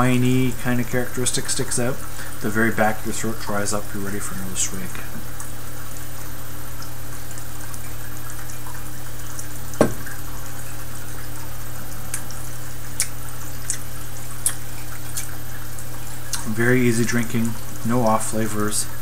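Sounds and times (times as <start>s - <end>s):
glass set down on table: 9.8s - 10.1s.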